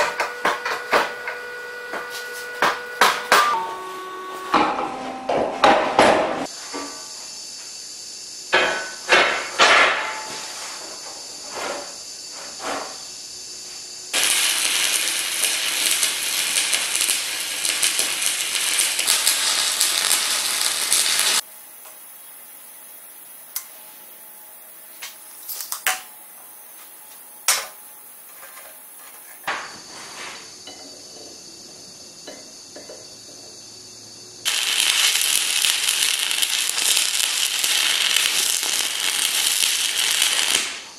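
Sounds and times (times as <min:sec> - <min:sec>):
arc welding crackle: 0:00.0 - 0:04.7, 0:14.1 - 0:22.3, 0:24.9 - 0:26.1, 0:34.4 - 0:40.9
loud even hiss: 0:14.1 - 0:21.4, 0:34.4 - 0:40.9.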